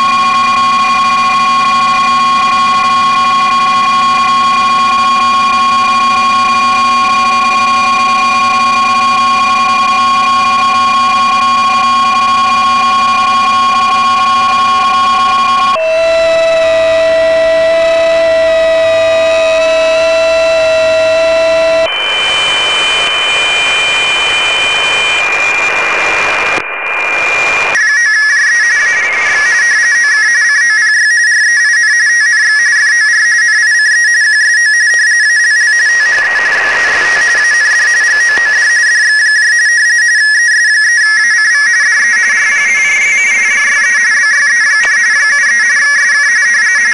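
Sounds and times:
steady radio tones: 0.0 - 46.9
radio hiss: 9.0 - 27.8
signal flicking between two tones: 32.4 - 46.9.

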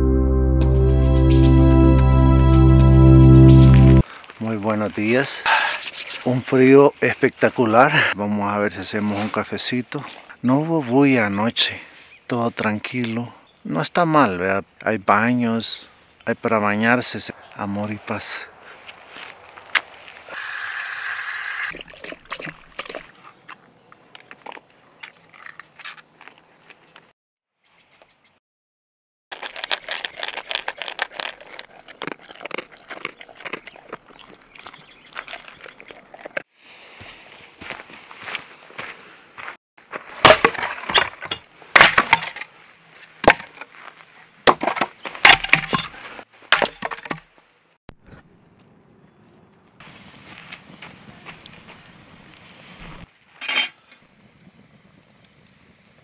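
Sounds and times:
running water: 20.4 - 23.2
small objects clicking and rustling: 29.3 - 34.0
axe chopping wood: 40.2 - 42.4, 43.2 - 43.6, 44.5 - 47.2.

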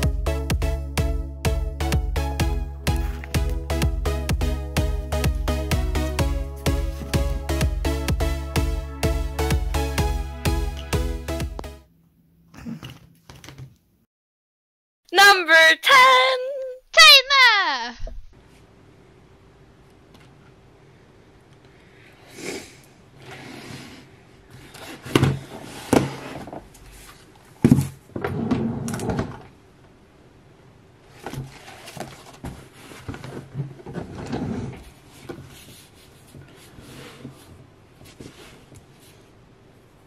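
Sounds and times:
desk drawer opening: 27.7 - 29.5, 33.5 - 35.0
rustling and handling: 31.1 - 39.4.

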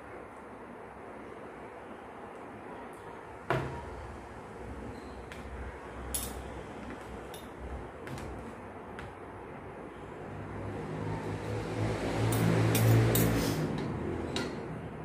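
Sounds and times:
cutlery clinking on a plate: 6.1 - 7.5, 12.3 - 14.6.

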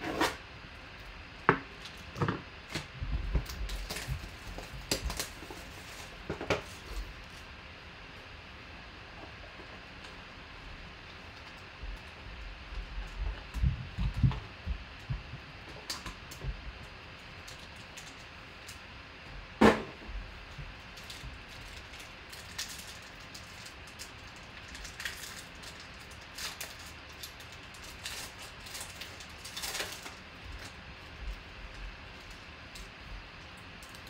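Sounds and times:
foil wrapper crinkling: 1.6 - 7.6, 15.7 - 18.8, 20.5 - 34.0.

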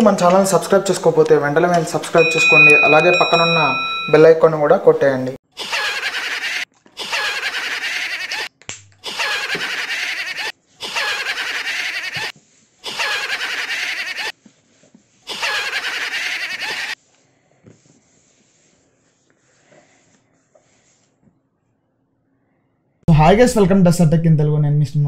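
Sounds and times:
laughing sound effect: 5.6 - 12.3.

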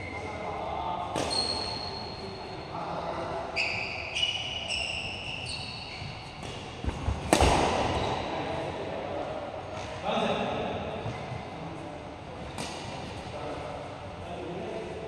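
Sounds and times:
shoe squeaks on court: 1.2 - 2.4, 3.6 - 6.6
racket hitting shuttlecock: 6.3 - 8.0.

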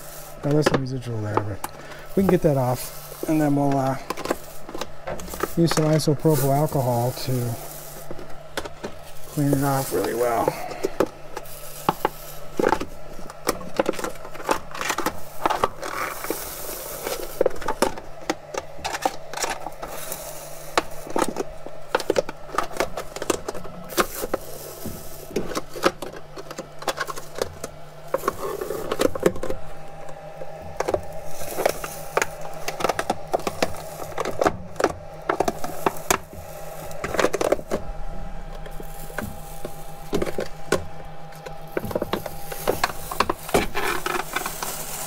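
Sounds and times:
steady low hum: 0.0 - 45.0
sticker peeling crackle: 0.0 - 45.0
plastic sheet scraping and knocking: 30.6 - 45.0.

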